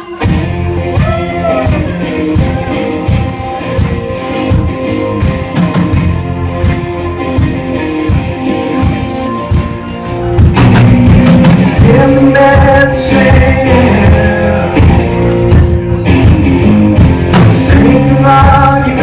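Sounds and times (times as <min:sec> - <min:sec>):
guitar: 0:00.0 - 0:19.0
live band playing: 0:00.0 - 0:19.0
man singing long notes: 0:11.6 - 0:15.5, 0:17.4 - 0:19.0.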